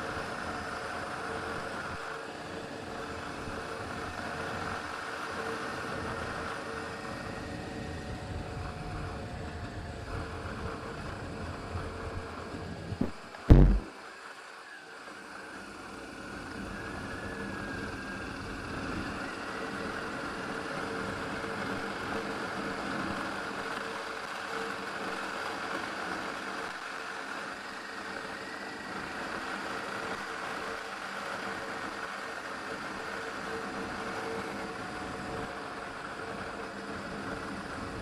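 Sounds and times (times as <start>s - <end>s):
motorcycle engine running: 12.9s - 13.9s.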